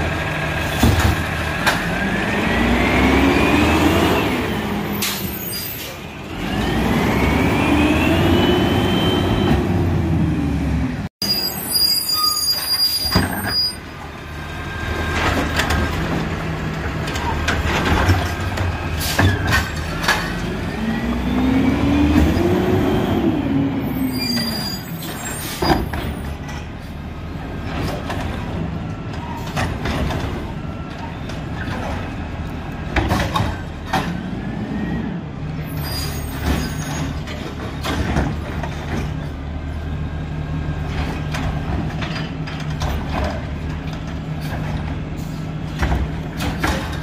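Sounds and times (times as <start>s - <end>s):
diesel engine idling and revving: 0.0s - 5.1s, 6.0s - 11.2s, 13.9s - 24.2s.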